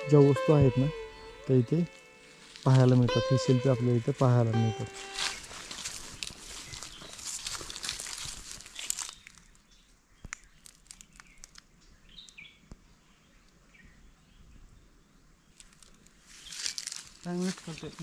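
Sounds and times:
footsteps crunching dry grass: 0:00.2 - 0:09.8, 0:15.6 - 0:18.0.

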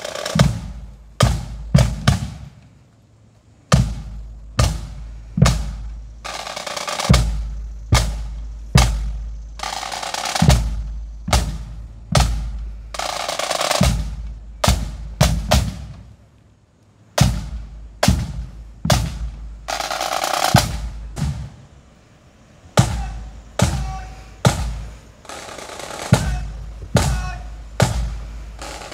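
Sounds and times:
bass drum strokes: 0:00.0 - 0:02.6, 0:03.7 - 0:06.2, 0:10.4 - 0:13.1, 0:13.8 - 0:16.2, 0:17.2 - 0:21.8, 0:22.7 - 0:25.1, 0:26.1 - 0:28.8
snare drum rolls: 0:00.0 - 0:02.7, 0:03.7 - 0:16.2, 0:17.2 - 0:21.7, 0:22.8 - 0:28.9.

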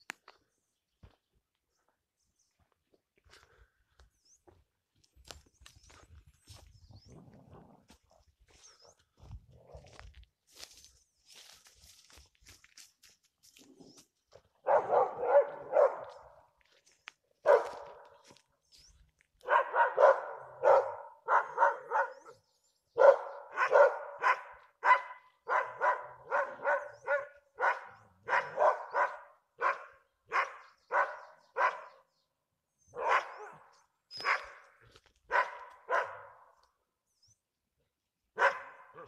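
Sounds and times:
dogs barking: 0:14.6 - 0:16.5, 0:17.4 - 0:18.4, 0:19.4 - 0:32.0, 0:32.8 - 0:36.6, 0:38.4 - 0:39.0.

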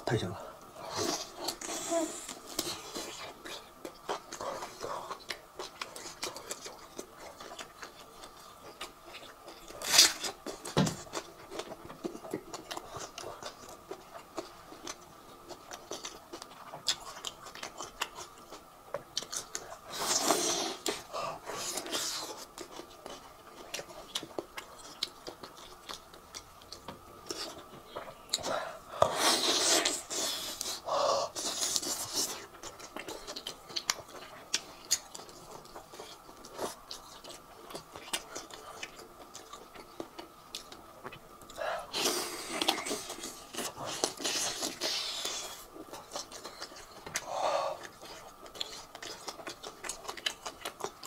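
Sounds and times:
chewing and biting meat: 0:41.9 - 0:51.0.

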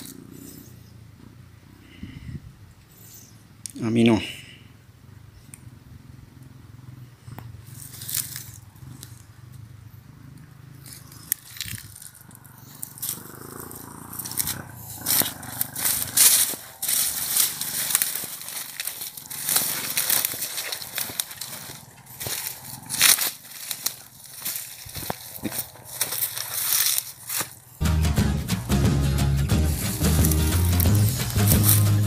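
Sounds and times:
dry grass and brush rustling: 0:07.4 - 0:27.9, 0:28.5 - 0:32.0.

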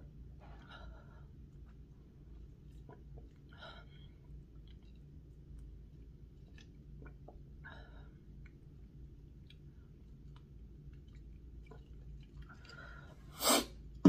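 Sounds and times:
low steady hum: 0:00.0 - 0:14.0
sucking through a straw: 0:13.3 - 0:13.8.

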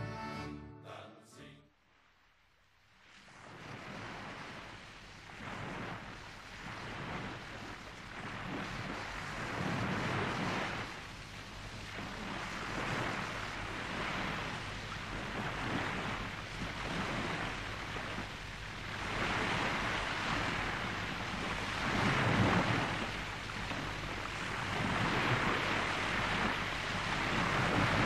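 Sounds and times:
ocean surf breaking on beach: 0:03.2 - 0:28.0.

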